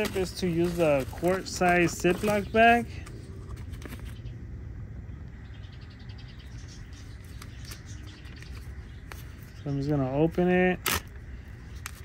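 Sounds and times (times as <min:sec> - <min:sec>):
plastic bag crinkling: 0:00.0 - 0:03.0
steady low rumble: 0:00.0 - 0:12.0.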